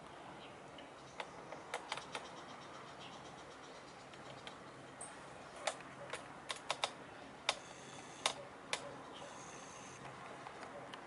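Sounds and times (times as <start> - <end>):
faint steady hiss: 0.0 - 11.0
sharp clicks: 1.2 - 2.3, 5.6 - 8.9.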